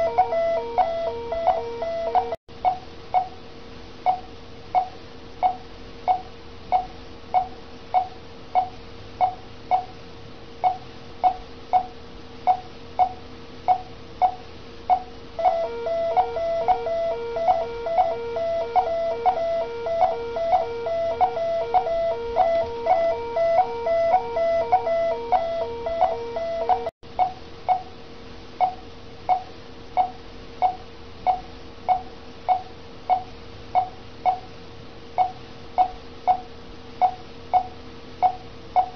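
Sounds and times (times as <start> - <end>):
pulsing multi-tone alarm: 0.0 - 2.4, 15.4 - 26.9
pulse oximeter beeps: 0.0 - 3.3, 4.1 - 9.9, 10.6 - 11.9, 12.5 - 27.8, 35.2 - 38.9
steady hum: 0.0 - 38.9.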